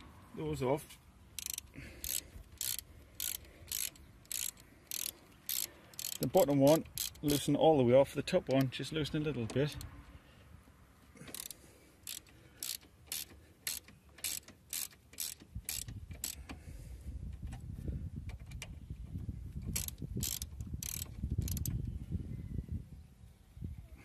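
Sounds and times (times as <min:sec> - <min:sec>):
ratchet wrench clicking: 0:01.3 - 0:07.5, 0:11.3 - 0:16.6, 0:19.7 - 0:21.8.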